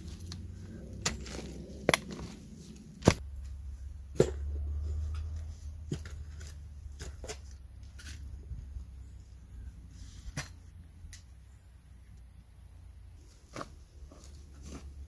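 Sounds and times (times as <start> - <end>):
low rumble: 0.0 - 6.2
shovel scraping and knocking soil: 0.0 - 8.6, 13.2 - 15.0.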